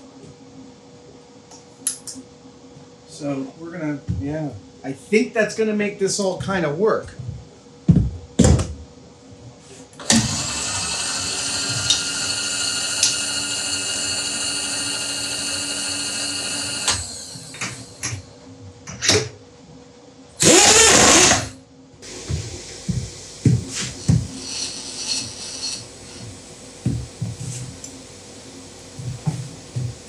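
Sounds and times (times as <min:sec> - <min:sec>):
milling machine motor whine: 0:10.0 - 0:18.2, 0:20.4 - 0:30.0.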